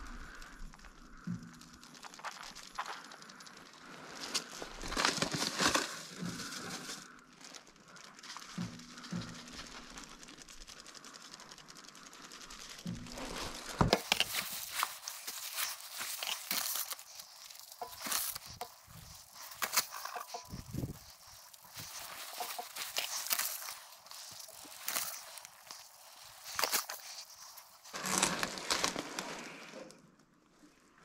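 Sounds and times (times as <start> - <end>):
plastic crinkling and rustling: 0.0 - 30.2.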